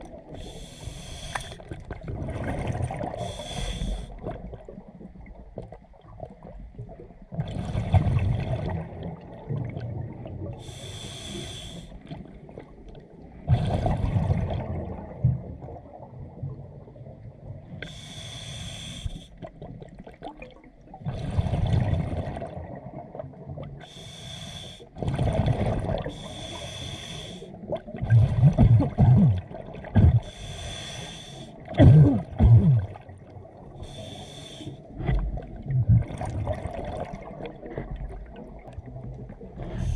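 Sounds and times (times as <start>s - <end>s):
hissing regulator inhale: 0.4s - 1.6s, 3.2s - 4.2s, 10.6s - 12.0s, 17.8s - 19.4s, 23.8s - 24.9s, 26.1s - 27.6s, 30.2s - 31.6s, 33.8s - 34.9s
gurgle of exhaled bubbles: 1.5s - 10.7s, 13.4s - 17.3s, 19.4s - 23.8s, 25.0s - 26.4s, 27.5s - 30.4s, 31.6s - 34.0s, 34.9s - 39.9s.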